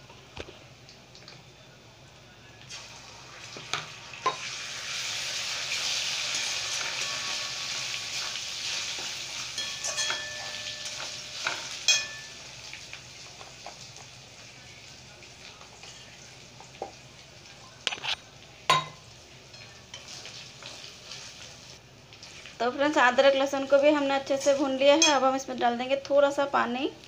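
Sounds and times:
onions sizzling in oil: 0:02.6 - 0:27.0
spatula scraping a pan: 0:06.2 - 0:11.8
spatula clinking against pan: 0:09.5 - 0:12.5.

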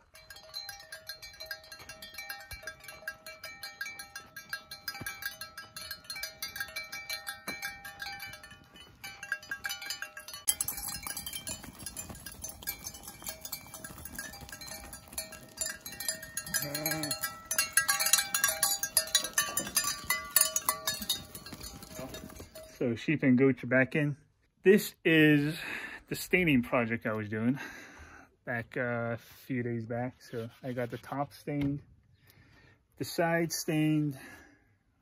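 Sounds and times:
hooves clattering on dry dirt: 0:00.0 - 0:23.0.

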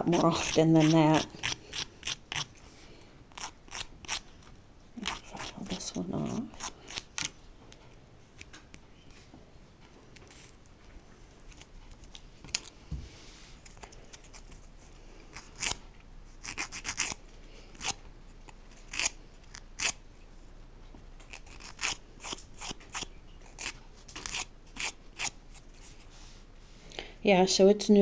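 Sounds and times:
nail file rasping on fingernail: 0:00.1 - 0:02.6, 0:03.3 - 0:07.3, 0:15.3 - 0:15.8, 0:16.4 - 0:18.0, 0:18.9 - 0:20.0, 0:21.3 - 0:25.6.

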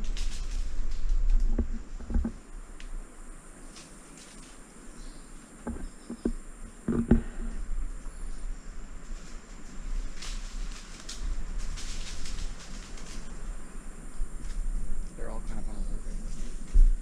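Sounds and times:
low rumble on microphone: 0:00.0 - 0:03.5, 0:04.9 - 0:17.0
high insect hum: 0:00.0 - 0:17.0.

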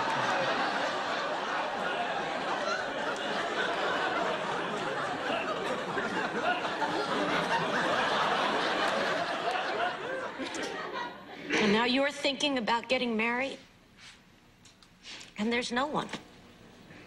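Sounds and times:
studio audience laughing: 0:00.0 - 0:11.7.

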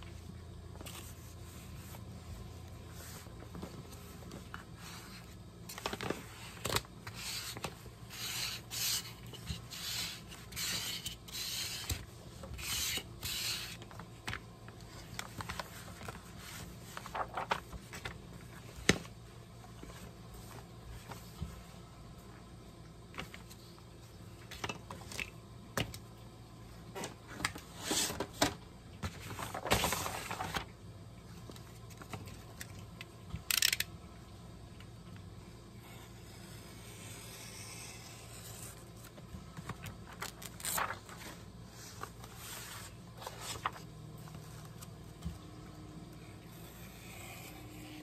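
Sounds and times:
hands rubbing paper: 0:16.3 - 0:17.5.

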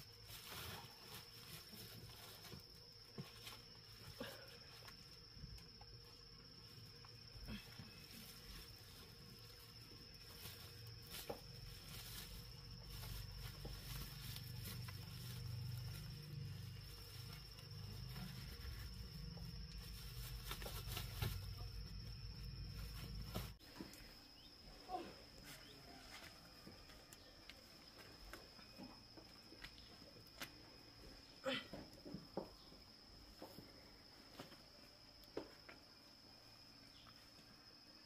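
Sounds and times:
bananas rustling into plastic sack: 0:00.0 - 0:05.7, 0:06.5 - 0:23.9
high insect drone: 0:00.0 - 0:38.0.

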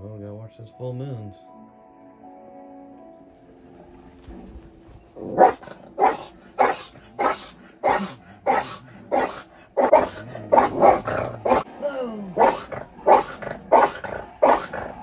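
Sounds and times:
dog barking: 0:05.2 - 0:11.7, 0:12.4 - 0:15.0.

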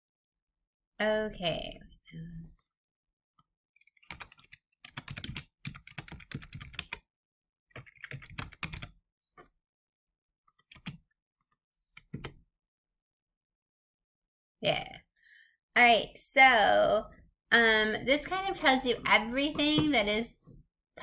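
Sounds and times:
computer keyboard typing: 0:03.8 - 0:07.0, 0:07.7 - 0:08.9, 0:10.5 - 0:11.0.

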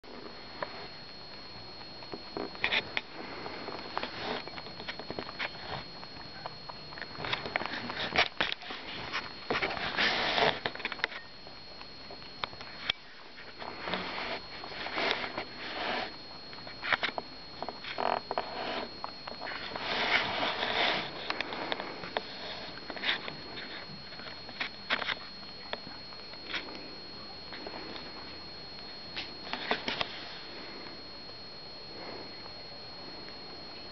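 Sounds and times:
rabbit crunching and chewing: 0:00.0 - 0:31.2.

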